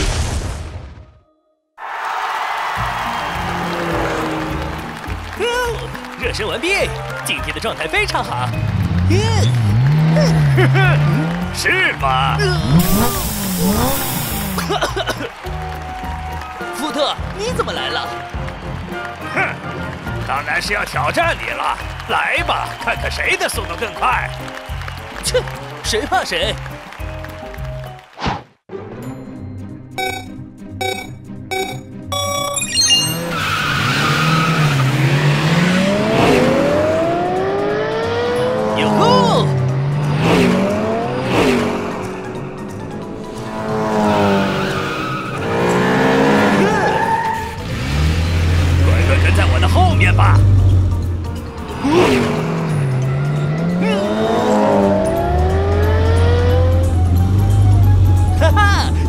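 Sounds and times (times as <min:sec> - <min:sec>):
background music: 0:02.2 - 0:59.0
race car engines revving: 0:02.9 - 0:27.2, 0:33.2 - 0:59.0
start-light beep: 0:30.0 - 0:33.4
tyres squealing: 0:44.6 - 0:50.9.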